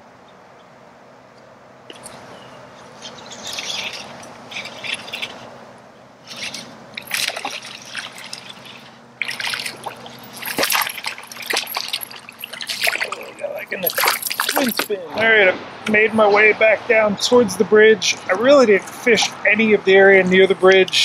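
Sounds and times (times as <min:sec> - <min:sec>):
water splashing around kayak: 0:01.9 - 0:05.5, 0:06.2 - 0:14.9.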